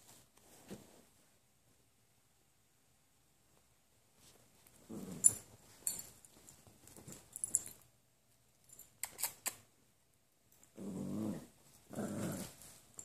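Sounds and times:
dogs scuffling: 4.1 - 7.9
dog growling: 10.8 - 12.6.

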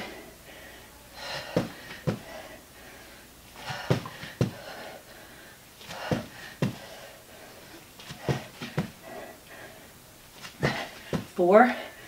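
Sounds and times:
hard breathing: 0.0 - 12.0
feet thumping on floor: 1.3 - 2.4, 3.6 - 4.8, 5.8 - 7.0, 8.0 - 9.2, 10.4 - 11.4.

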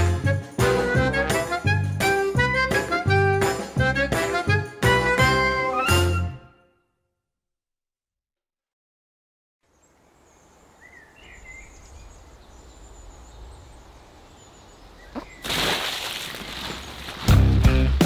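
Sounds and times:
loud music: 0.0 - 6.4
birds chirping: 9.7 - 17.0
loud water splash: 15.4 - 18.0.

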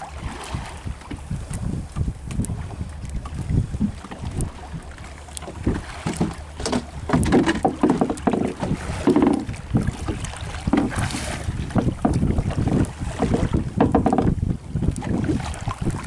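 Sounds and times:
water slapping against boat hull: 0.0 - 16.0
wind buffeting microphone: 0.0 - 16.0
knocks and clicks: 5.4 - 9.5.

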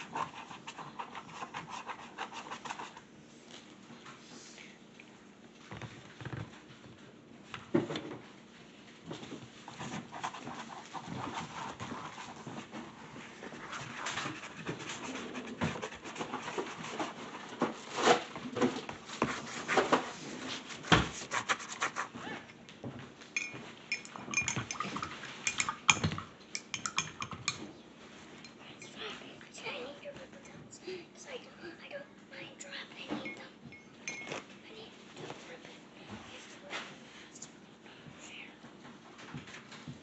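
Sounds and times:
paintbrushes clinking against mugs: 23.4 - 27.7, 33.1 - 34.5.

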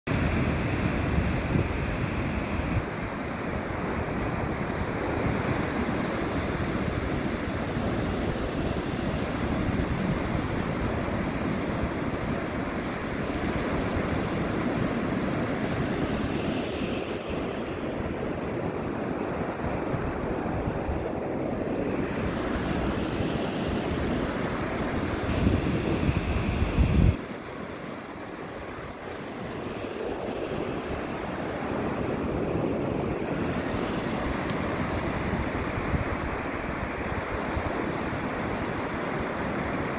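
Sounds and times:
surf washing onto beach: 0.1 - 39.9
wind buffeting microphone: 0.1 - 39.9.

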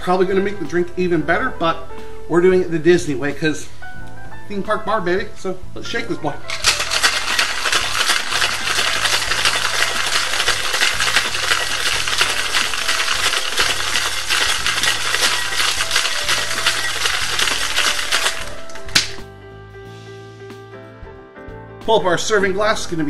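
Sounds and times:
background music: 0.0 - 23.0
ice rattling in shaker tins: 6.5 - 19.2.

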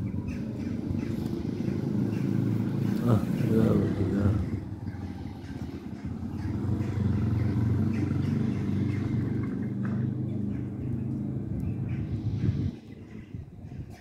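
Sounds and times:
vehicle engine humming: 0.0 - 14.0.

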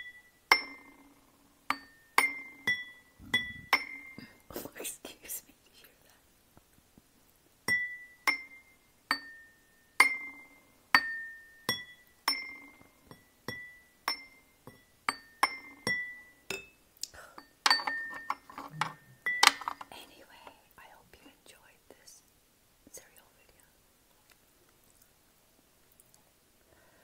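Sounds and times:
spoon tapping ceramic bowls: 11.0 - 16.7, 17.4 - 19.9
spoon knocking on tray: 17.6 - 19.8.

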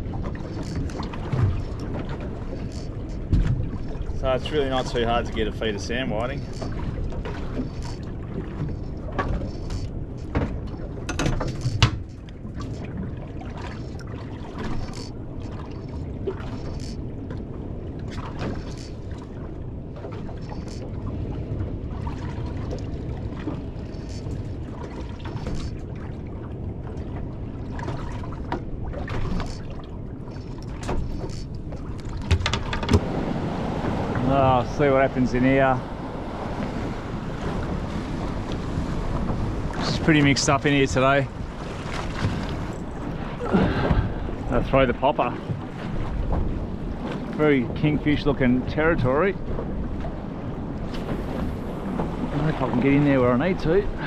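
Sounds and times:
wind and water around boat: 0.0 - 54.0
fishing rod and reel knocks: 28.5 - 33.0.

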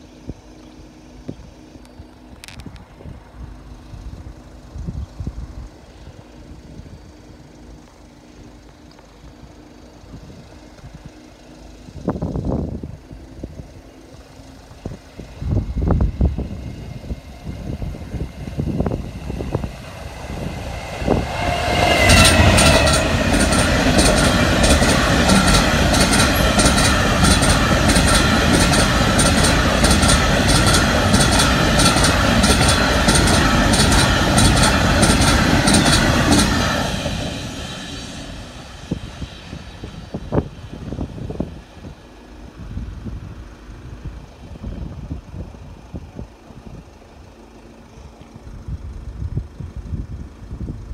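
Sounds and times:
freight train passing: 0.0 - 50.9
high whine sliding down: 14.2 - 44.7
wheels clicking over rail joints: 17.7 - 37.5.

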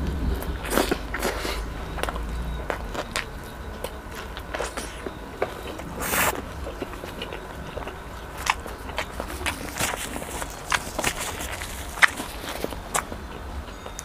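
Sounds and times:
wet chewing and lip smacking: 0.4 - 14.0
biting into fried chicken: 4.5 - 14.0.

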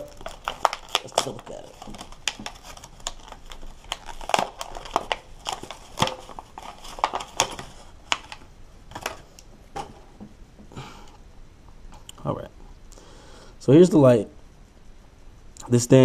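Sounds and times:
packaging snapping: 0.0 - 9.5
packaging crinkling and crackling: 0.0 - 9.9.

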